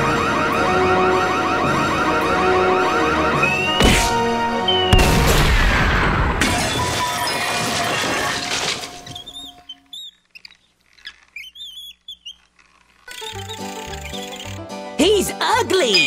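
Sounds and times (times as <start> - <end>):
crumbling rattling debris: 5.9 - 9.2
high wavering squeaks: 8.8 - 14.8.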